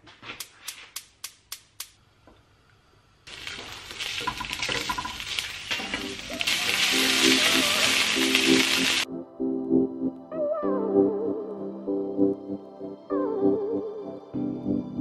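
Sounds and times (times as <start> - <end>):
wooden spoon stirring: 3.3 - 9.0
beef sizzling in a frying pan: 3.3 - 9.1.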